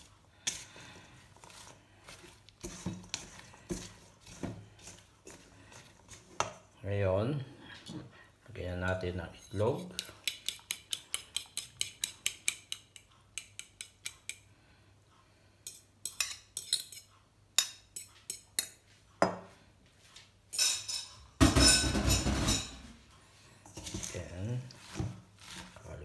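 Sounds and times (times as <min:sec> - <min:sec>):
clinks and scrapes in metal bowl: 0:00.0 - 0:06.8, 0:09.3 - 0:12.8, 0:15.6 - 0:19.3, 0:20.5 - 0:22.9, 0:23.6 - 0:26.0
fork beating eggs in a bowl: 0:00.0 - 0:06.8, 0:09.3 - 0:14.5, 0:15.6 - 0:18.8.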